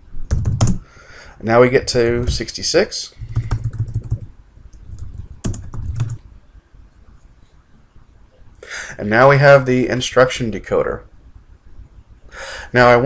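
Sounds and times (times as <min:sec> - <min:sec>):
computer keyboard typing: 0:00.3 - 0:00.8, 0:03.2 - 0:04.3, 0:04.9 - 0:06.2.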